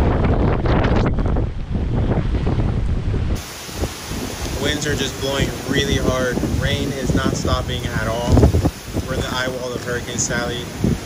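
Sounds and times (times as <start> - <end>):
strong wind buffeting microphone: 0.0 - 11.0
heavy rain hissing: 3.2 - 11.0.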